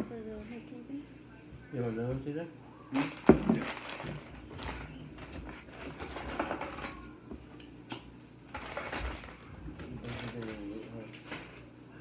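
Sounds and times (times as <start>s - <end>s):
paper bag rustling: 3.0s - 7.0s, 8.5s - 11.7s.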